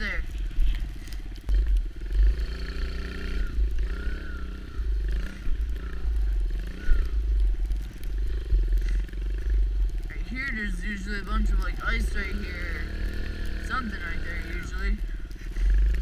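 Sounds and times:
wind rumbling on microphone: 0.0 - 16.0
dirt bike engine revving: 1.5 - 7.3, 10.3 - 16.0.

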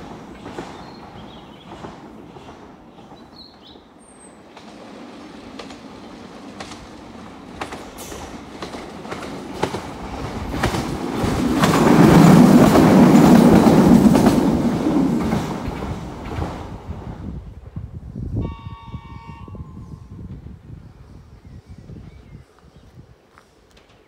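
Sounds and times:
electric train passing: 0.0 - 21.2
wheels clicking over rail joints: 4.5 - 16.6.

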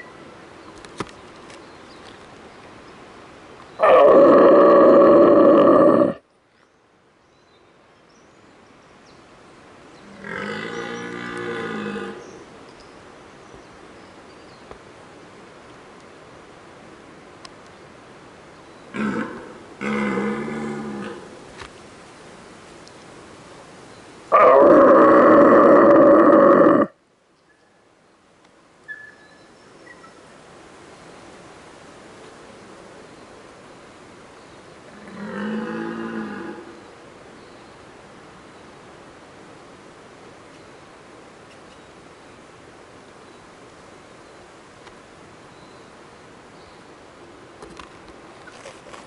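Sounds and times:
deer stag roaring: 3.8 - 6.2, 19.0 - 21.3, 24.3 - 26.9.

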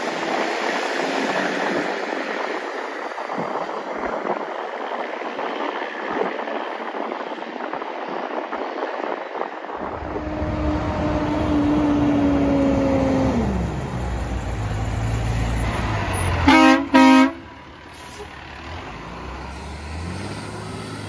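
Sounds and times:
truck engine rumbling: 0.0 - 21.0
wind and road noise: 0.0 - 21.0
engine hum sliding down: 9.6 - 16.6, 17.6 - 21.0.

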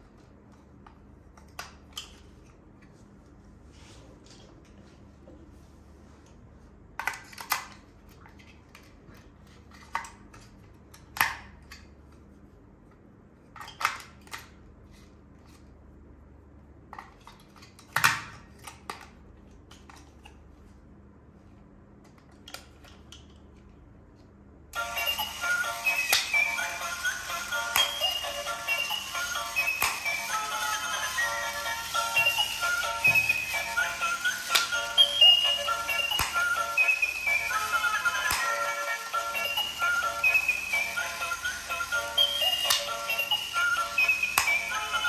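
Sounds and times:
toy parts clicking and tapping: 13.5 - 14.6, 24.8 - 45.0
music: 24.8 - 45.0.

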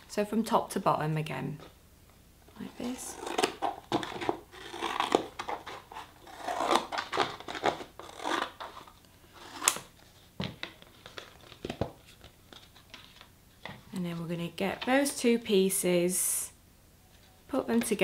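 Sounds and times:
board crinkling: 2.6 - 13.9.

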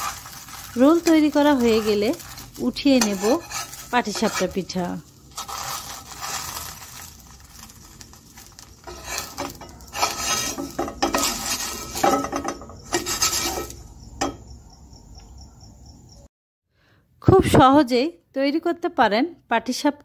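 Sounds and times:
metal spatula scraping pan: 0.0 - 14.4.

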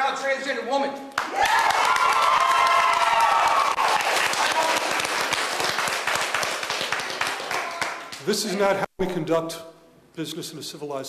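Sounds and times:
crowd cheering: 1.2 - 8.2
audience applauding: 1.2 - 8.3.

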